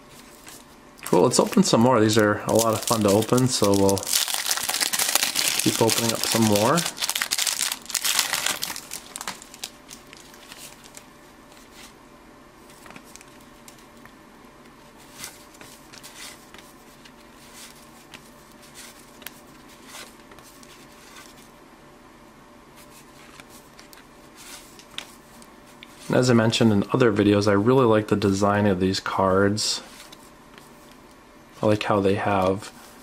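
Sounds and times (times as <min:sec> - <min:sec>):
cellophane wrapper crinkling: 0:02.4 - 0:11.0.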